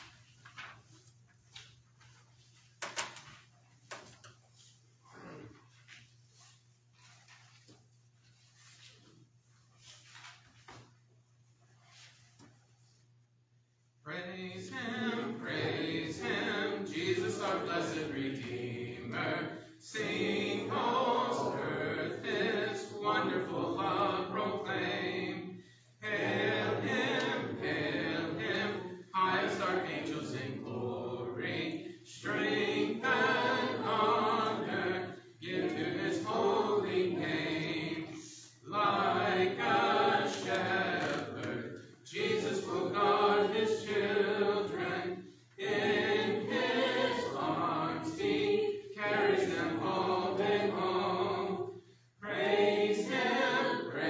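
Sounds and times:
congregation singing a hymn: 0:14.1 - 0:54.0.

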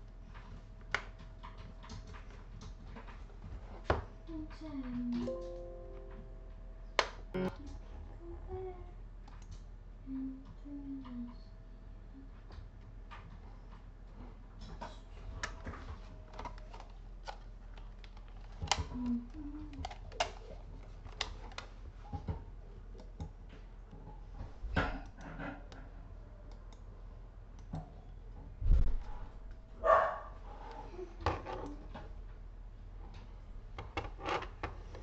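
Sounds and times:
low steady hum: 0:00.0 - 0:35.0
computer mouse and keyboard clicks: 0:16.3 - 0:21.8.

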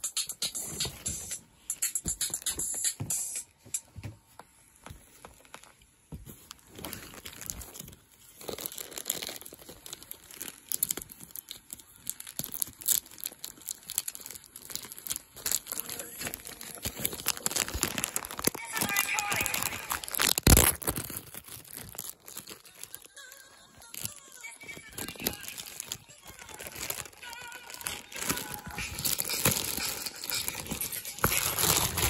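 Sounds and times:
plastic wrapping crinkling: 0:04.5 - 0:32.0
background music: 0:22.3 - 0:32.0.

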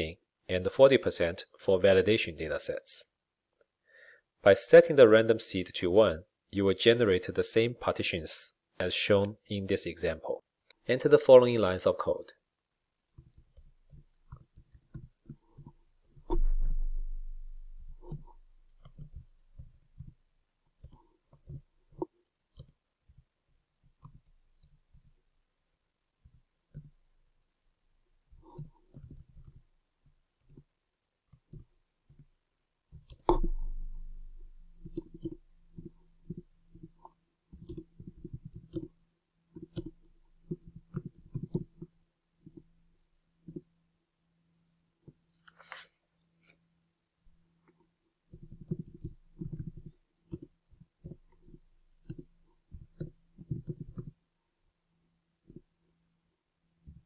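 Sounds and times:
dull thump: 0:16.3 - 0:18.4.

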